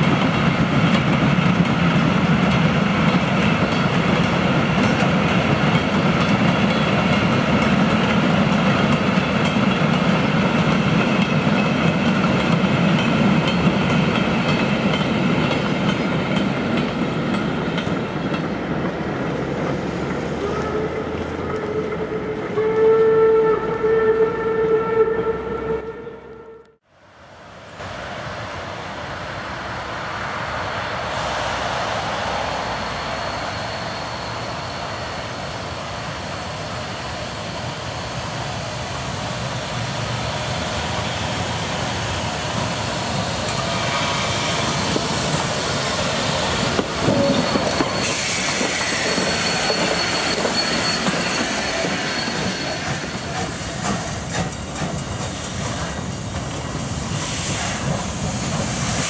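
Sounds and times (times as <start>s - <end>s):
steam train wheels rumbling: 0.0s - 25.1s, 27.4s - 59.0s
high wheel squeal: 32.7s - 38.3s, 43.4s - 54.3s.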